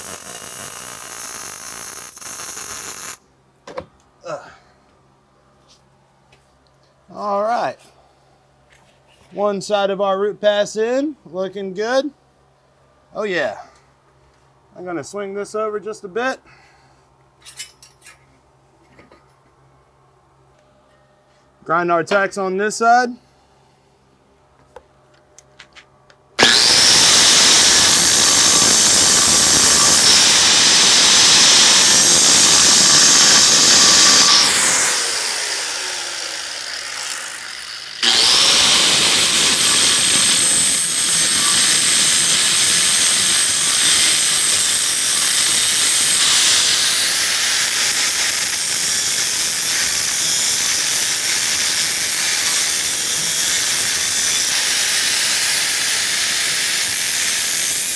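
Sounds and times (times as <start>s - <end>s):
angle grinder grinding metal: 26.4s - 57.9s.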